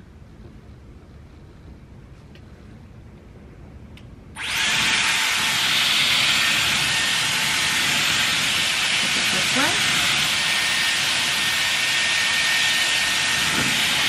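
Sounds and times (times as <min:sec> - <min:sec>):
hair styler blowing air: 0:04.4 - 0:14.0.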